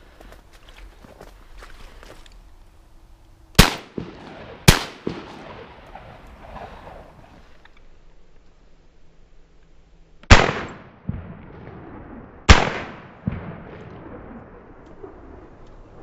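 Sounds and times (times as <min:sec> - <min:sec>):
gunshot echo: 0:03.6 - 0:07.0, 0:10.3 - 0:14.5
shotgun shots: 0:03.6 - 0:07.0, 0:10.3 - 0:14.3.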